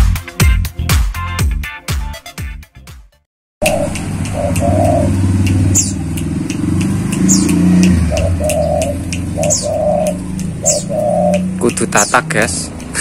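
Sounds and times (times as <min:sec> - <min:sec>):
dove cooing: 0:03.6 - 0:06.2, 0:06.9 - 0:11.6
small birds chirping: 0:03.6 - 0:13.0.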